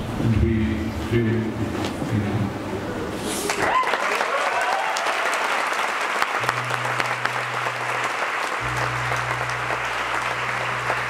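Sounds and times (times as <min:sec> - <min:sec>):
audience applauding: 0:03.4 - 0:11.0
low held instrument note: 0:06.4 - 0:11.0.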